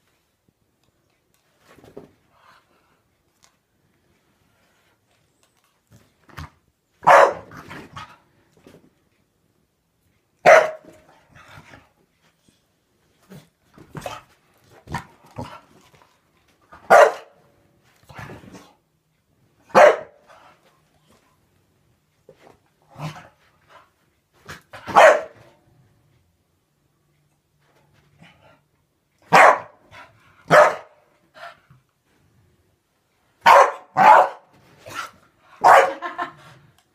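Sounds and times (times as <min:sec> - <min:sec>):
dog barking: 0:07.0 - 0:07.5, 0:10.4 - 0:10.9, 0:16.9 - 0:17.4, 0:19.7 - 0:20.2, 0:24.9 - 0:25.4, 0:29.3 - 0:29.8, 0:30.5 - 0:31.0, 0:33.4 - 0:34.5, 0:35.6 - 0:36.1.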